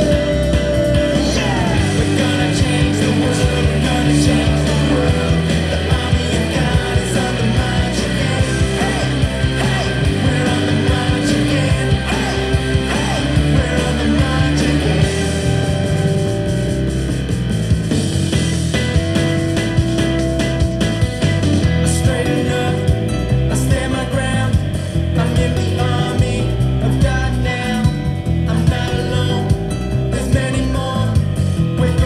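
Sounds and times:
person singing: 0:00.0 - 0:16.0, 0:21.8 - 0:32.0
music with steady beat: 0:00.0 - 0:32.0.

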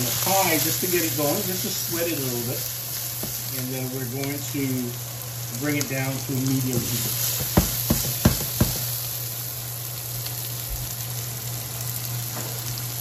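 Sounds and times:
knocks of stirring in pan: 0:00.0 - 0:09.1
vegetables sizzling in oil: 0:00.0 - 0:13.0.

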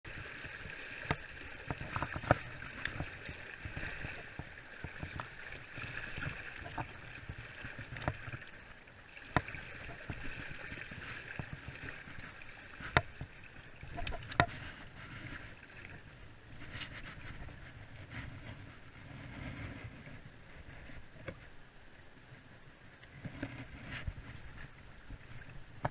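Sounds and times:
shallow river over rocks: 0:00.0 - 0:25.9
wading gear knocking stones: 0:00.2 - 0:08.6, 0:09.2 - 0:15.4.

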